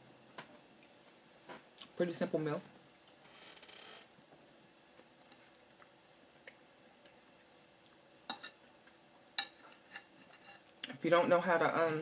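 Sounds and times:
fork clinking against a plate: 8.3s - 8.6s.

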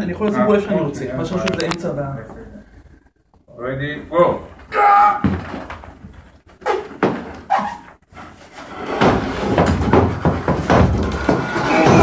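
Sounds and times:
knocking and rattling table: 8.9s - 12.0s.

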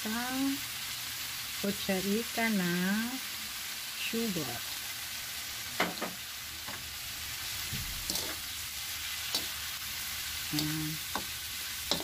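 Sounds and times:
food sizzling in a hot pan: 0.0s - 12.0s
spatula scraping a pan: 8.0s - 8.5s, 11.1s - 12.0s.

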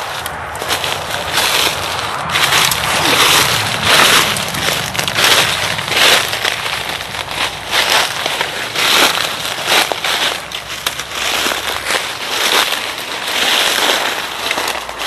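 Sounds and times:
footsteps on dry leaves: 0.0s - 15.0s.

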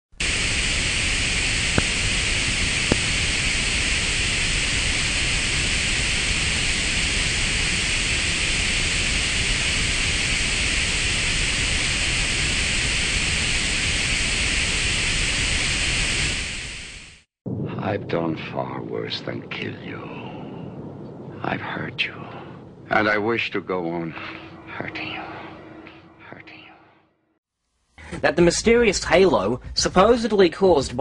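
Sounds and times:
television static hiss: 0.2s - 17.0s.

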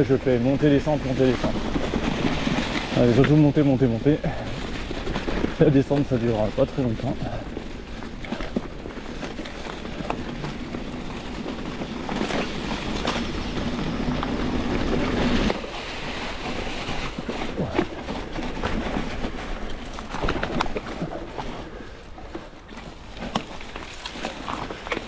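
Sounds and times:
bike clicking and rattling: 0.0s - 25.0s
bike tyres crunching dry leaves: 0.0s - 25.0s.

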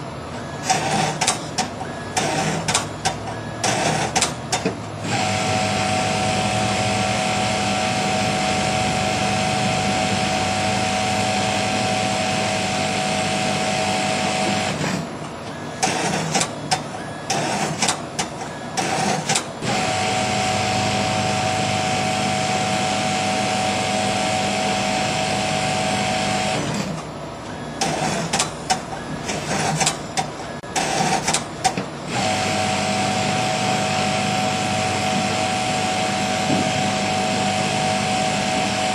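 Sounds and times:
sewing machine running: 5.0s - 15.0s, 17.3s - 18.0s, 18.8s - 26.9s, 32.0s - 38.9s.

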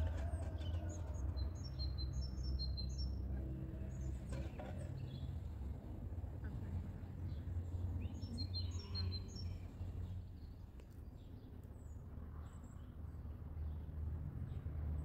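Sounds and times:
small birds chirping: 0.4s - 3.2s, 6.5s - 13.9s.

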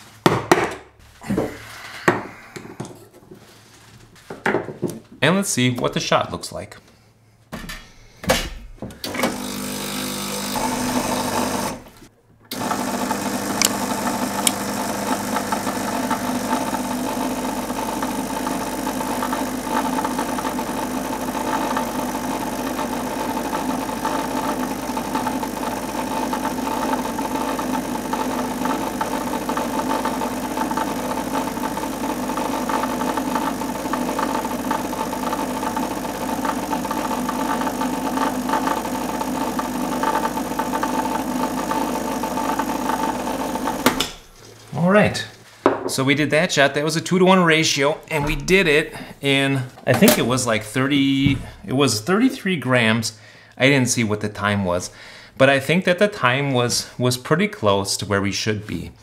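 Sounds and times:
espresso machine pump humming: 9.0s - 11.9s, 12.5s - 44.1s.

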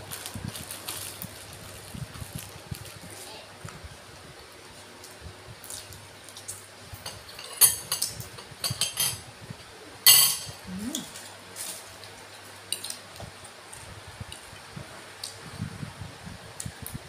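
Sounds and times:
crunching and chewing seafood: 0.0s - 3.8s, 4.5s - 7.4s.

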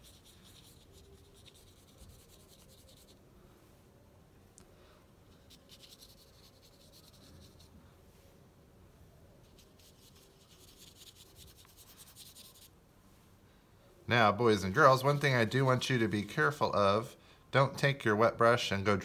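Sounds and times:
paintbrush scratching on paper: 0.0s - 3.2s, 5.3s - 7.8s, 9.4s - 12.8s.

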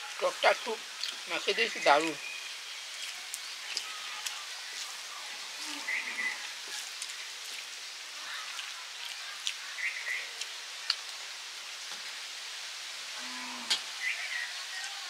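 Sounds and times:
outdoor ambience: 0.0s - 15.0s
chewing: 1.0s - 1.2s, 2.9s - 5.0s, 5.6s - 11.1s
bird chirps: 5.6s - 6.4s, 9.7s - 10.3s.

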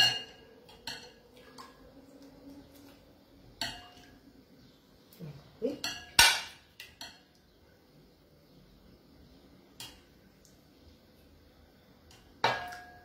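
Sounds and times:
metal spoon clinking ceramic bowl: 0.0s - 1.2s, 12.4s - 13.0s.

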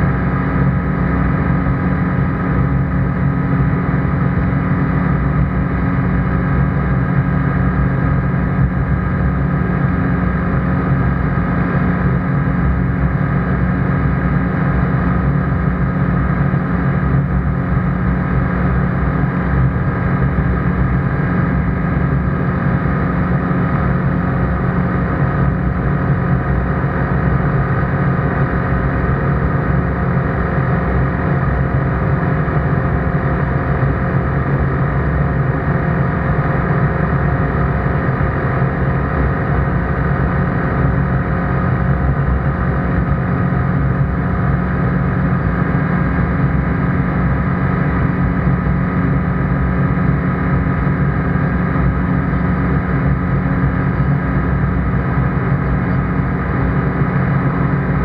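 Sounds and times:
aircraft engine and propeller droning: 0.0s - 58.0s.

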